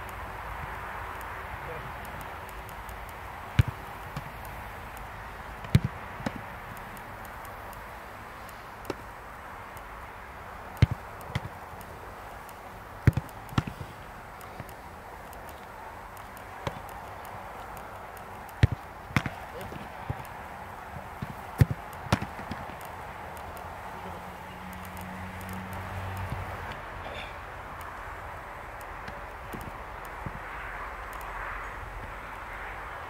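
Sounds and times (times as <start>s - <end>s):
steady background hiss: 0.0s - 33.0s
football being kicked: 13.0s - 13.8s, 18.6s - 20.2s, 21.2s - 22.8s.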